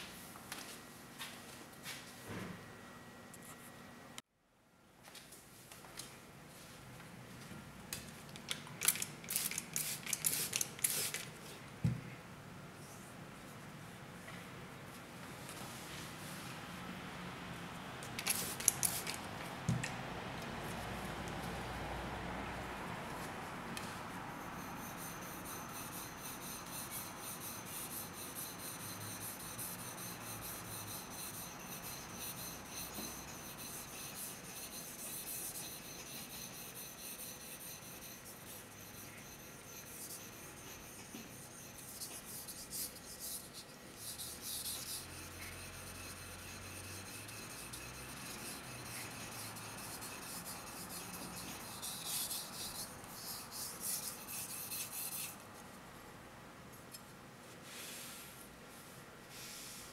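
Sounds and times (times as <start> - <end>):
knife blade scraping on whetstone: 24.4 - 55.4.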